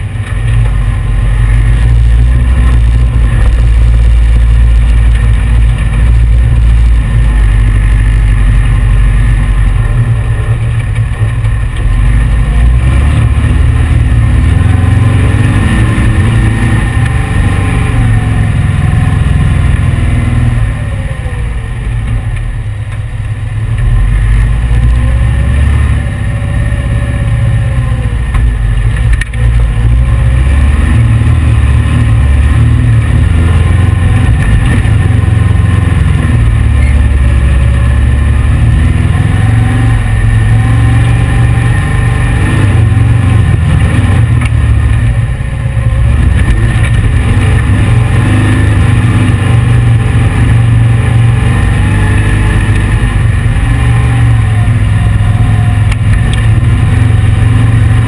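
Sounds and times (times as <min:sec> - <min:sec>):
engine revving under load: 0:00.0 - 0:22.4, 0:23.7 - 0:58.0.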